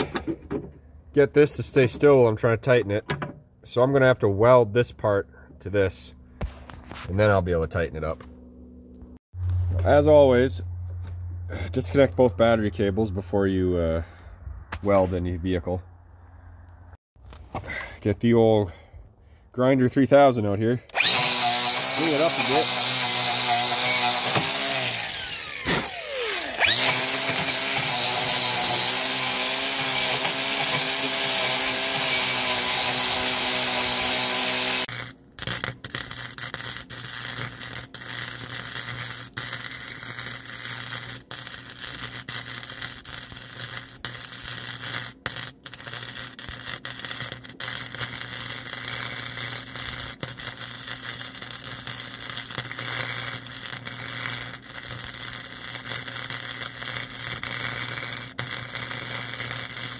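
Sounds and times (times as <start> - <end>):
angle grinder grinding steel: 20.9 - 59.9
arc welding crackling sizzle: 21.0 - 59.9.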